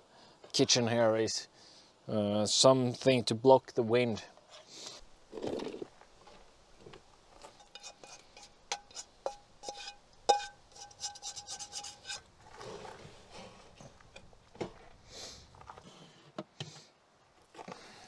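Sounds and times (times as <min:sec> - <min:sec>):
utensil scraping a pan: 0:07.4 - 0:14.3.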